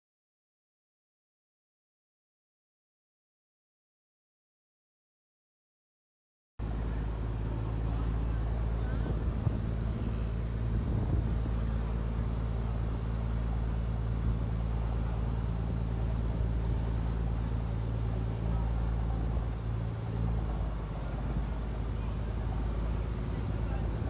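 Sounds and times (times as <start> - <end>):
boat diesel engine droning: 6.6 - 24.0
rushing wake water: 6.6 - 24.0.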